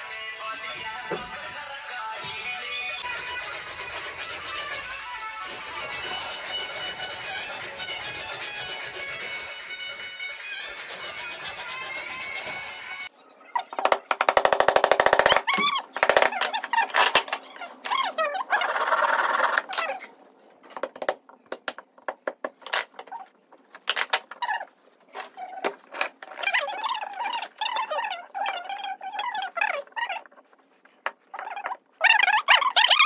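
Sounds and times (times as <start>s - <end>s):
rapid working strokes on wood: 3.0s - 4.8s, 5.4s - 9.6s, 10.5s - 12.6s.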